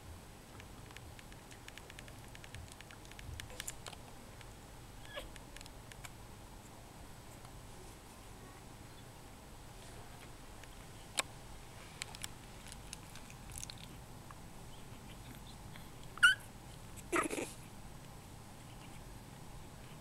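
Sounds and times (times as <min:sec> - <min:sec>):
faint clicks: 0:00.6 - 0:04.5
puppy squeaking: 0:05.0 - 0:05.3, 0:16.2 - 0:16.5, 0:17.1 - 0:17.5
puppy whimpering: 0:05.0 - 0:05.3, 0:16.2 - 0:17.6.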